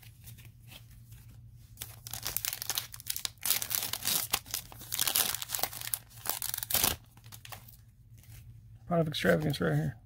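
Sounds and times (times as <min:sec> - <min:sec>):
foil wrapper crinkling and tearing: 0:01.8 - 0:07.7.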